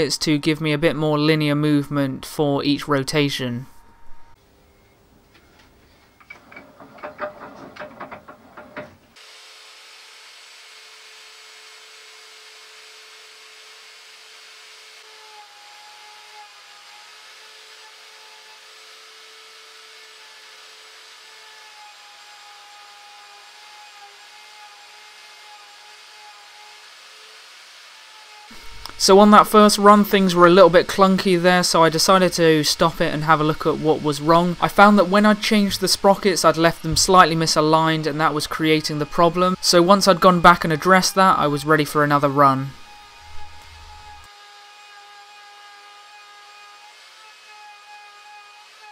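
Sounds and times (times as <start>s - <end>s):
faint wavering whine: 3.2s - 7.3s, 42.7s - 44.3s
wood knocks and clicks: 6.2s - 9.0s
router and lathe motor running: 9.2s - 48.9s.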